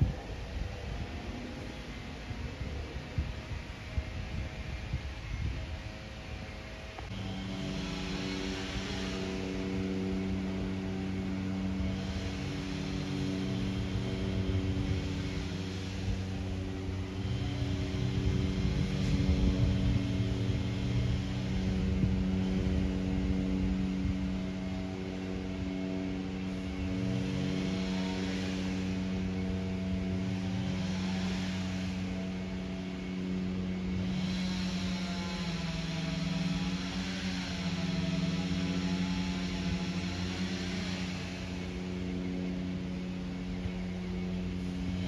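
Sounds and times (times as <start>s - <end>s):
distant propeller aeroplane: 0.0s - 45.0s
steady hum: 0.0s - 45.0s.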